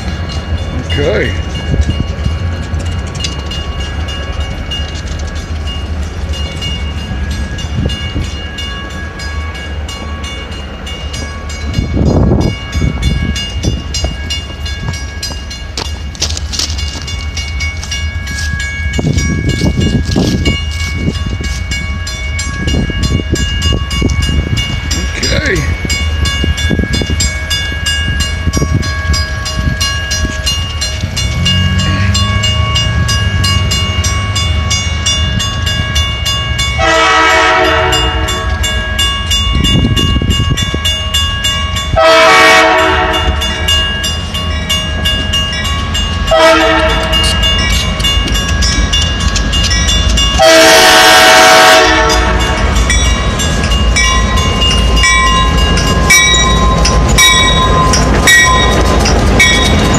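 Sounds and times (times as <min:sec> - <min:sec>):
crossing bell ringing: 0:00.0 - 0:59.9
diesel engines rumbling: 0:00.0 - 0:59.9
locomotive air horn blasts: 0:36.8 - 0:38.5, 0:42.0 - 0:43.5, 0:46.3 - 0:47.2, 0:50.4 - 0:52.6.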